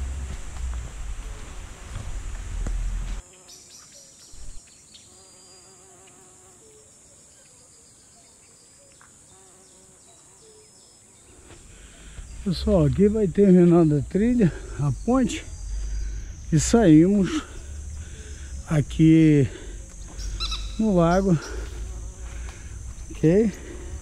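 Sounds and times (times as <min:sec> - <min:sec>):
low rumble on microphone: 0:00.0 - 0:03.2, 0:11.6 - 0:24.0
flying insects buzzing: 0:00.0 - 0:24.0
high-pitched insect whine: 0:00.0 - 0:24.0.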